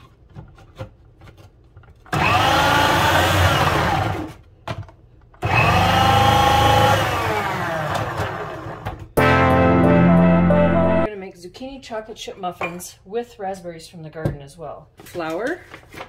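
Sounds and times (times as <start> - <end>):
food processor motor whine: 2.1 - 4.4, 5.4 - 9.0.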